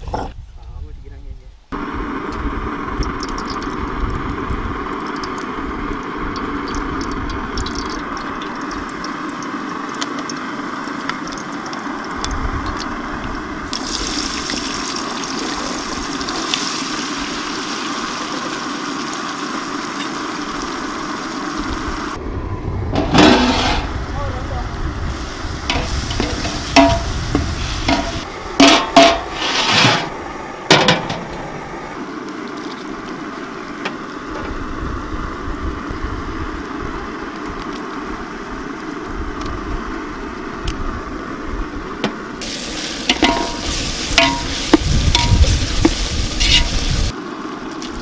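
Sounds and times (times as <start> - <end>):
food sizzling in oil: 2.7 - 22.2, 25.1 - 29.6, 42.4 - 47.2
metal ladle scraping a pan: 23.0 - 23.9, 25.7 - 30.1, 43.1 - 46.9.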